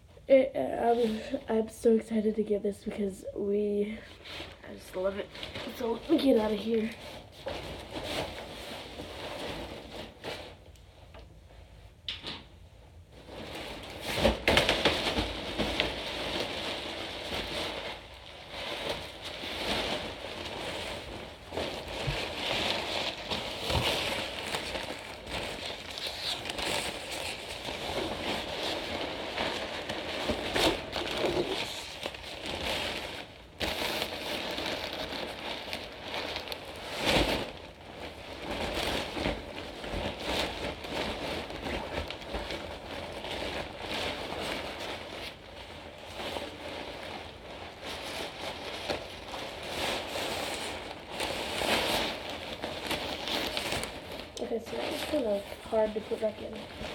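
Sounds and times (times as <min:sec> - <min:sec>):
nylon fabric rustling and crinkling: 0:00.1 - 0:11.9, 0:12.7 - 0:56.9.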